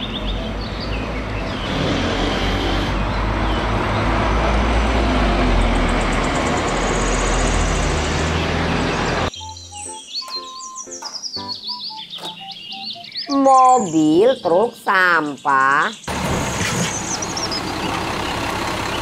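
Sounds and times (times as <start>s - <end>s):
bus engine humming: 0.0s - 9.3s, 16.1s - 19.0s
road and traffic noise: 0.0s - 9.4s, 12.0s - 19.0s.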